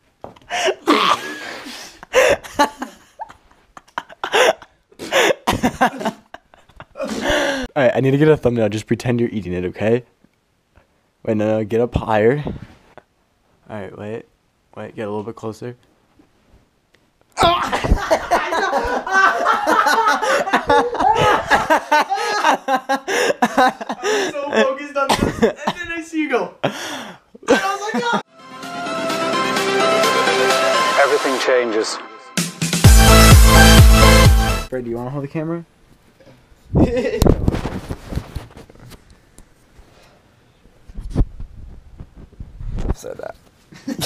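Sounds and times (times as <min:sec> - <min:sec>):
man gagging and retching: 0:00.8 - 0:01.4
young men laughing and yelling: 0:02.0 - 0:07.7, 0:17.4 - 0:28.3.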